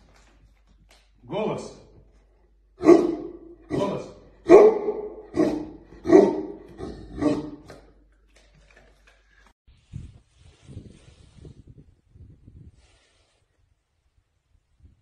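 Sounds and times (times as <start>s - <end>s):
dog barking: 2.8s - 7.6s.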